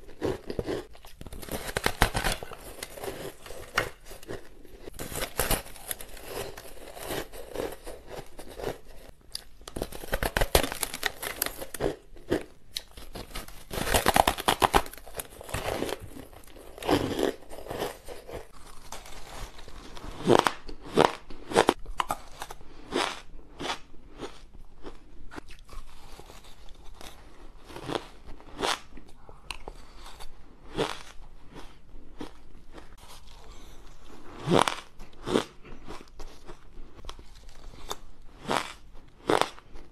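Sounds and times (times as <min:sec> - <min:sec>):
crunching ice: 0:00.0 - 0:09.1, 0:09.7 - 0:23.0.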